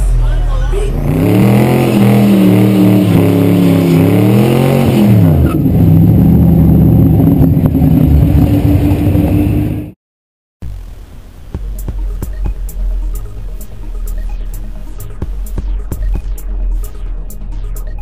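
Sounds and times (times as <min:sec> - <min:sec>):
drag car engine revving: 0:00.0 - 0:10.0.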